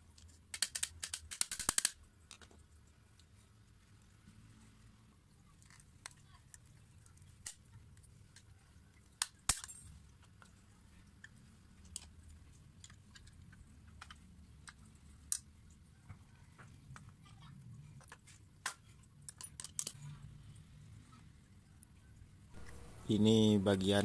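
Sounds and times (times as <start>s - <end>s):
metal tools clicking on plastic: 0.1s - 2.6s, 11.2s - 15.5s, 18.0s - 20.1s.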